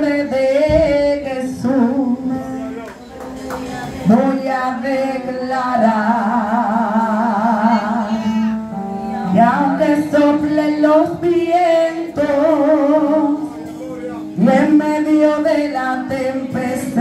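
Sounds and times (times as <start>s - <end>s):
woman singing into microphone: 0.0s - 2.7s, 3.4s - 17.0s
instrumental backing: 0.0s - 17.0s.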